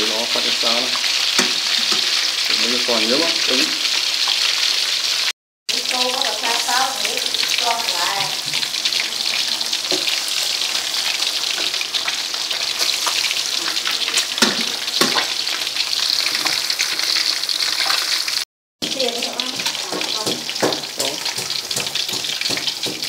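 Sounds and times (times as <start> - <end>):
fish sizzling in hot oil: 0.0 - 23.0
loud knocks: 19.9 - 23.0.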